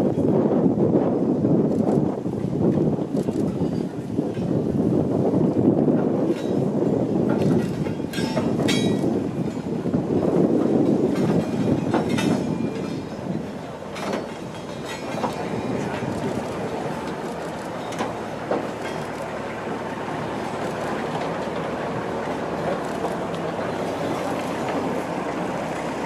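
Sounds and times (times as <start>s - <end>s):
wheels rumbling on rail: 0.0s - 26.0s
sharp clanks and knocks: 6.2s - 9.7s, 10.9s - 13.1s, 13.9s - 19.6s.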